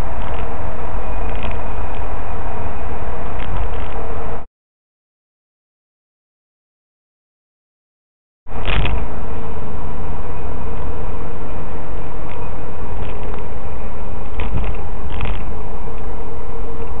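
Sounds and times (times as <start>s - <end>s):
buzzing hum: 0.0s - 4.4s, 8.5s - 17.0s
car engine and road rumble: 0.0s - 4.4s, 8.5s - 17.0s.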